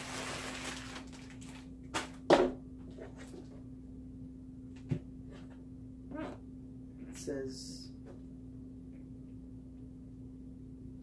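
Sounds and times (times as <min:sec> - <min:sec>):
plastic packing crinkling: 0:00.0 - 0:02.2.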